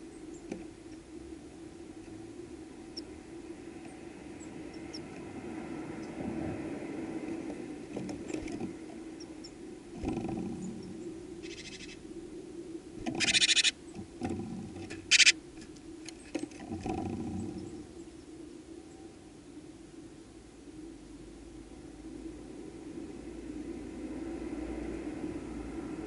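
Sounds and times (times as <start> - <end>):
steady low hum: 0.0 - 26.0
harsh rattling bird calls: 9.2 - 12.0, 13.1 - 14.0, 14.9 - 15.4.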